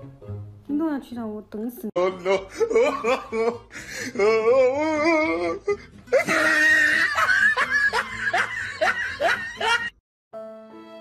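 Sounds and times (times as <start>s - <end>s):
person laughing hard: 2.0s - 10.0s.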